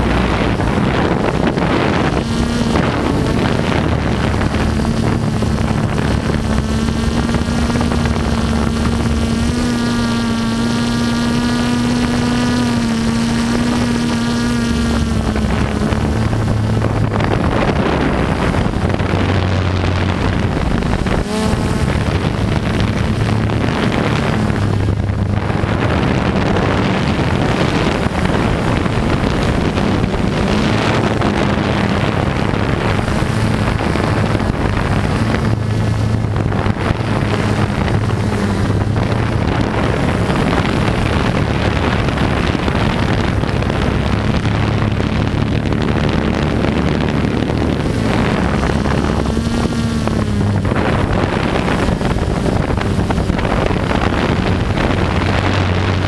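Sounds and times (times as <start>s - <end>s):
drone propellers whirring: 0.0s - 56.0s
wind noise on microphone: 0.0s - 56.0s.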